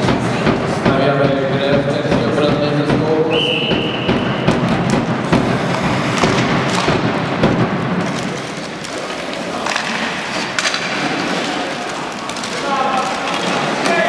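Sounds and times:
sharp knocks: 0:00.0 - 0:08.3
sticks and puck clattering: 0:00.0 - 0:14.0
blades scraping ice: 0:05.2 - 0:14.0.

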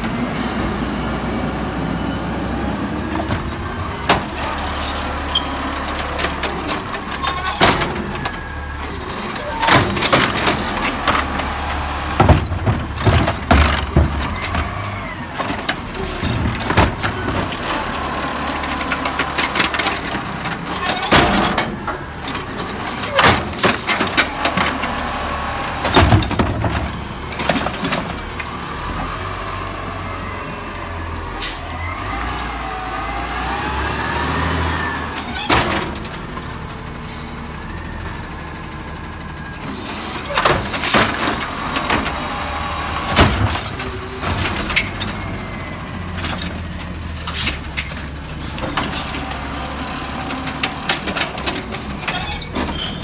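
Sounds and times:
carts clanking and banging: 0:03.1 - 0:28.5, 0:35.1 - 0:38.0, 0:39.6 - 0:53.0.

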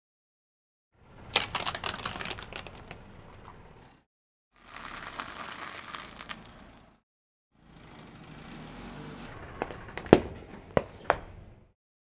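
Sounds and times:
glass bauble crushed by tyre: 0:04.6 - 0:06.8.

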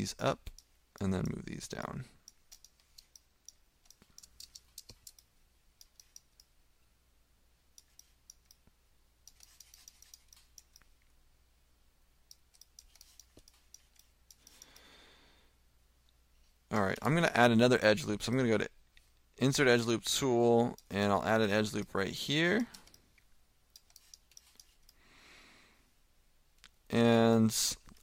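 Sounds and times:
low steady hum: 0:00.0 - 0:28.0
computer mouse clicks: 0:00.4 - 0:01.4, 0:02.2 - 0:06.5, 0:07.8 - 0:11.0, 0:12.3 - 0:14.9, 0:22.6 - 0:25.0.

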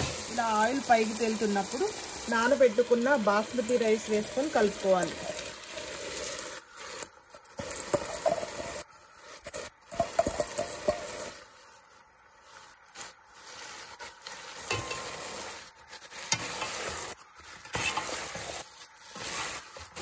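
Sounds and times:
rice and chicken sizzling: 0:00.0 - 0:20.0
metal spatula scraping and knocking: 0:07.6 - 0:08.8, 0:09.9 - 0:11.2, 0:17.6 - 0:18.5.

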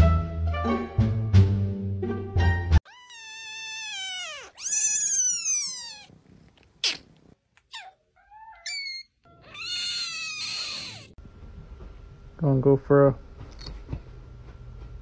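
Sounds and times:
kittens meowing: 0:02.8 - 0:06.1, 0:06.8 - 0:11.2.

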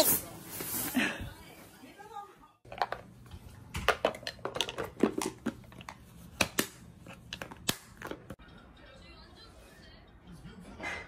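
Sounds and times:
plastic containers clicking and knocking: 0:02.7 - 0:03.1, 0:03.8 - 0:06.7.

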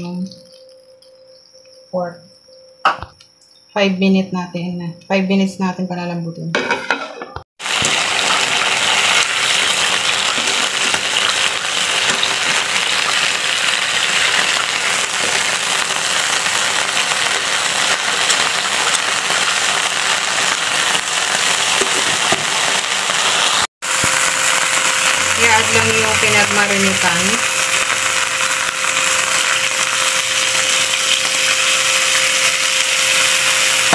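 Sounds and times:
meat sizzling in a frying pan: 0:07.6 - 0:33.9.

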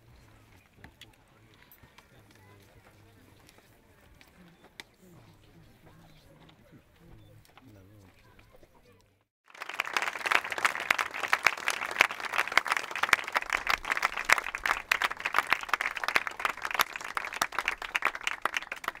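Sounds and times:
crowd applauding: 0:09.4 - 0:19.0.

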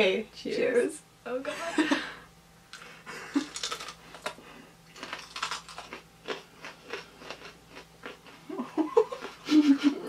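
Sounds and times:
crunchy chewing: 0:02.7 - 0:09.5.

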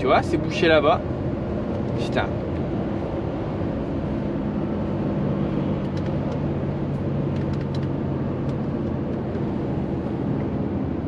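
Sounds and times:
truck engine and road drone: 0:00.0 - 0:11.0.

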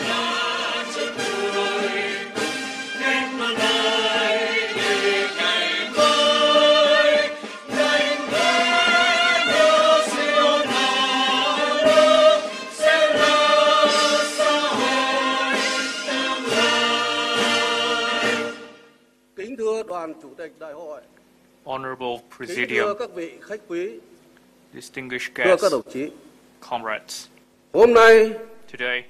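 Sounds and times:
choir singing solemn anthem: 0:00.0 - 0:18.9.

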